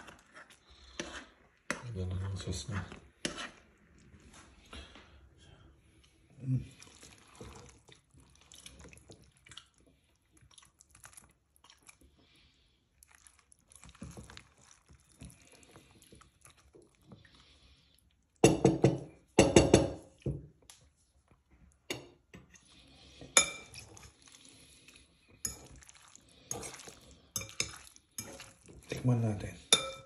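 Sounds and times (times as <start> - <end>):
spatula scraping bowl: 0.0 - 4.4, 22.3 - 30.0
wet squelching of food: 0.0 - 5.2, 5.8 - 18.4, 22.5 - 29.7.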